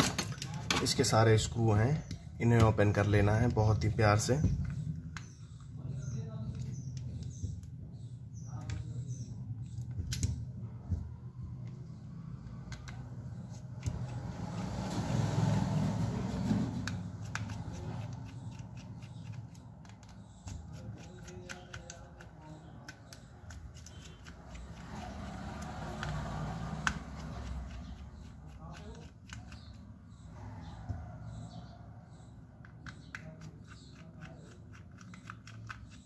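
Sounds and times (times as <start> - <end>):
screwdriver clicking and scraping: 16.8 - 22.3.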